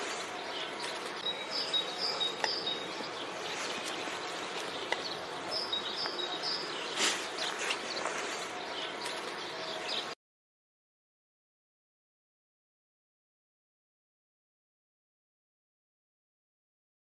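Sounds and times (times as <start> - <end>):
small birds chirping: 0.0 - 10.2
steady background hiss: 0.0 - 10.2.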